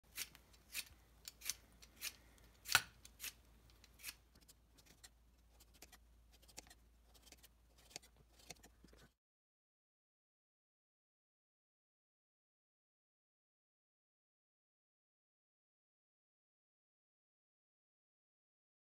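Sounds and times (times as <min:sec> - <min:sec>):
peeler scraping carrot: 0:00.1 - 0:09.1.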